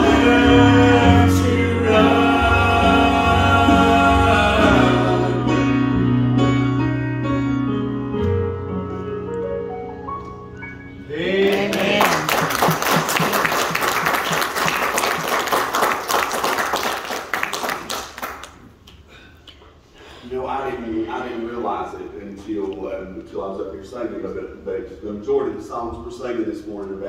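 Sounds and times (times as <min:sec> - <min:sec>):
gospel choir and keyboard chord: 0:00.0 - 0:07.6
congregation applauding: 0:11.4 - 0:18.8.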